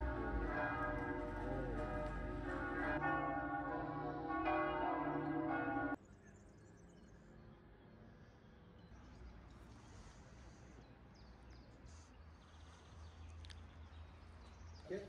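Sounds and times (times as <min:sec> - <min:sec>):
church bells ringing: 0:00.0 - 0:06.0.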